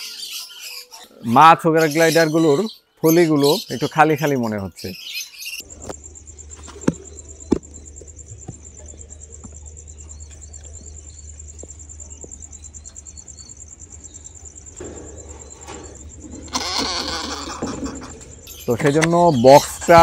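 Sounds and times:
cricket trilling: 0:00.0 - 0:20.0
low hum: 0:05.6 - 0:19.1.

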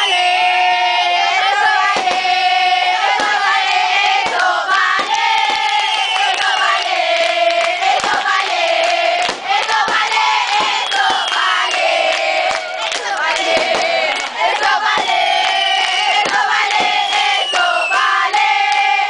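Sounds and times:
firework bangs: 0:01.8 - 0:18.1
crowd cheering and screaming: 0:10.2 - 0:19.0.

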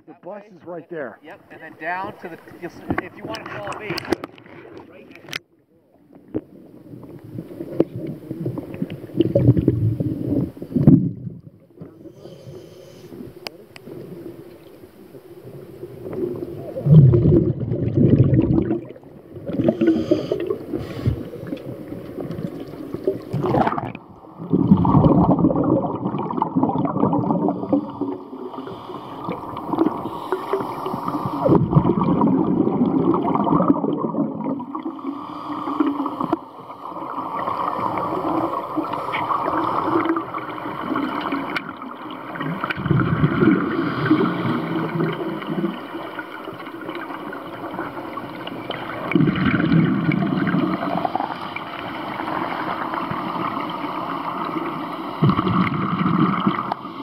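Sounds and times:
exhaled bubbles gurgling: 0:06.2 - 0:57.0
scuba diver breathing underwater: 0:11.9 - 0:13.4, 0:16.1 - 0:41.6, 0:42.8 - 0:46.0, 0:49.6 - 0:57.0.

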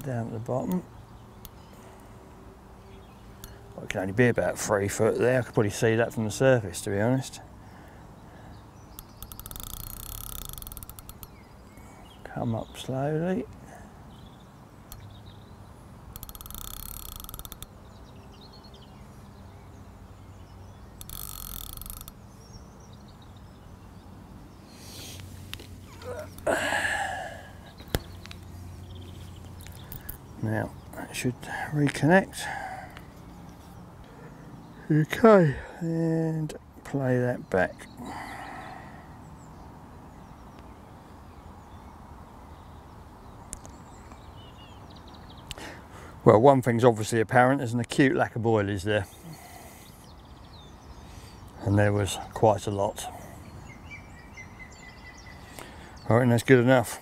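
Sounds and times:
faint birds chirping: 0:00.0 - 0:57.0
fishing reel ticking: 0:09.0 - 0:11.3, 0:16.1 - 0:17.7, 0:21.0 - 0:22.2
sharp click: 0:16.2 - 0:17.7, 0:21.0 - 0:22.2.

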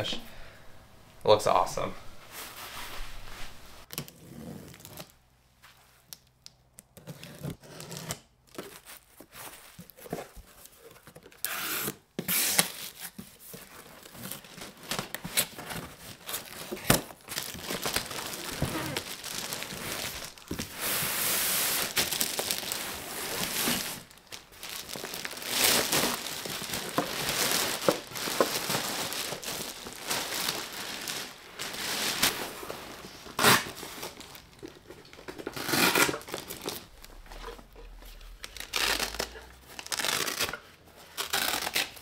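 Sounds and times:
plastic wrapping crinkling: 0:12.6 - 0:42.0.

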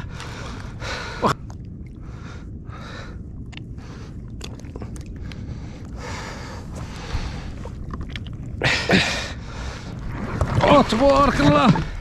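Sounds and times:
steady low rumble: 0:00.0 - 0:12.0
crackling handling noise: 0:06.7 - 0:08.6.

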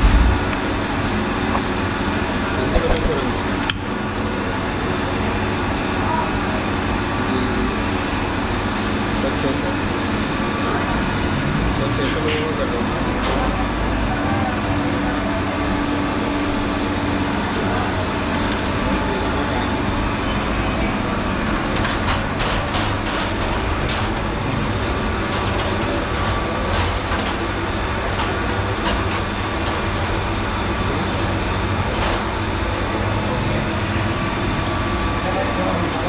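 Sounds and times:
traffic noise: 0:00.0 - 0:36.0
voices: 0:08.8 - 0:22.9
sharp clicks and clatters: 0:21.5 - 0:30.4.

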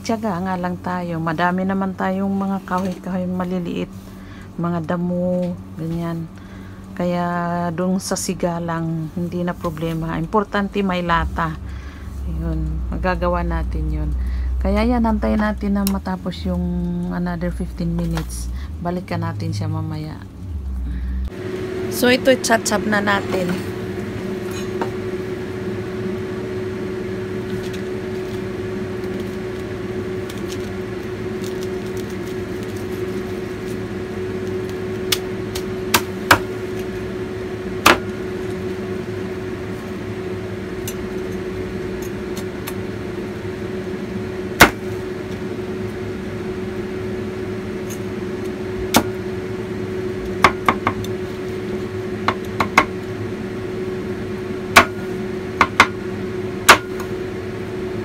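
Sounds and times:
steady electrical hum: 0:00.0 - 0:58.0
cleaver chopping on wooden board: 0:35.9 - 0:36.5, 0:37.8 - 0:38.1, 0:44.6 - 0:44.8, 0:55.6 - 0:56.0.

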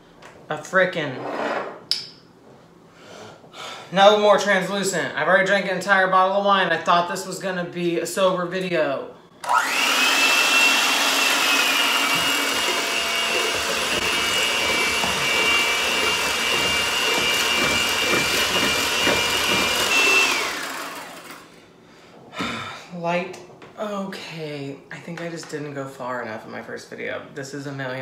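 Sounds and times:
electric hand mixer whining: 0:09.4 - 0:21.5.

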